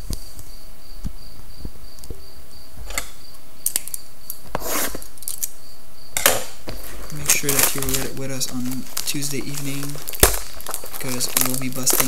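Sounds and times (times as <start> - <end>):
hands rustling on a tabletop: 6.7 - 12.0.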